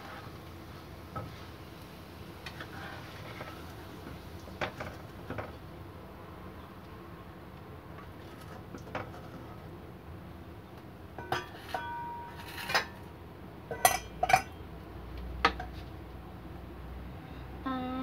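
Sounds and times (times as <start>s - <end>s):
metal kitchenware clinking: 11.2s - 13.1s, 13.7s - 14.6s.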